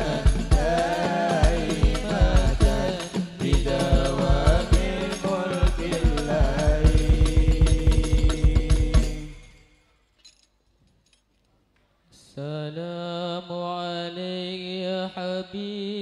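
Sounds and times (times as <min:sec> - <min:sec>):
rapid frame drum beats: 0:00.0 - 0:09.5
men singing into microphones: 0:00.0 - 0:09.6, 0:12.2 - 0:16.0.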